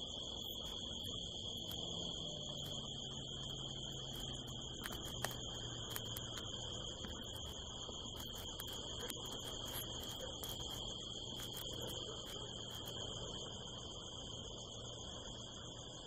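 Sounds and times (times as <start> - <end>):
crickets trilling: 0.0 - 16.0
light clicks: 3.5 - 13.0.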